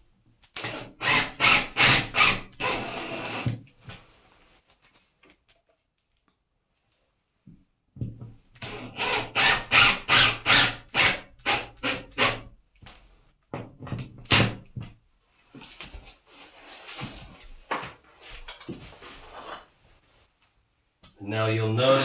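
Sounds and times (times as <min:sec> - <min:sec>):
cordless drill driving screw: 0:00.6 - 0:03.5, 0:08.6 - 0:12.4.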